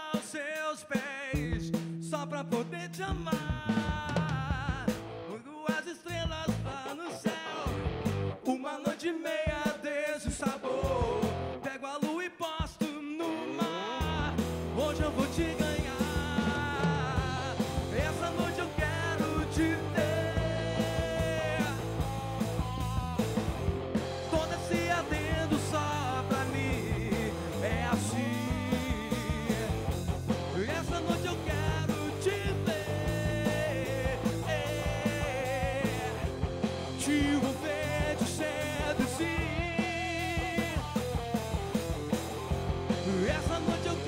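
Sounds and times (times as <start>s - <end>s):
man singing: 0.0s - 36.3s, 36.9s - 41.0s, 42.9s - 44.0s
drum kit: 0.0s - 44.0s
electric bass: 1.4s - 5.3s, 7.7s - 8.4s, 10.8s - 11.6s, 14.0s - 44.0s
electric guitar: 1.4s - 5.5s, 6.2s - 8.5s, 10.8s - 11.7s, 13.4s - 44.0s.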